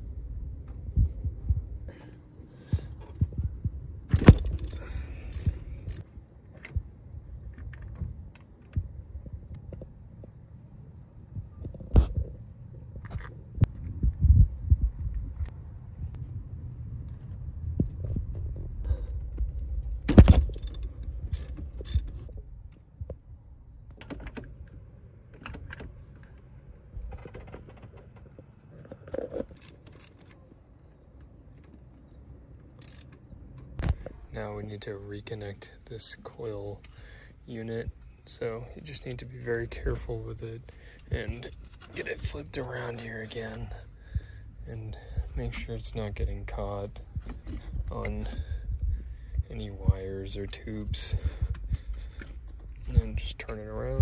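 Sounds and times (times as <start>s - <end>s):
metal hand tools clinking: 4.1s - 6.0s, 32.8s - 33.1s.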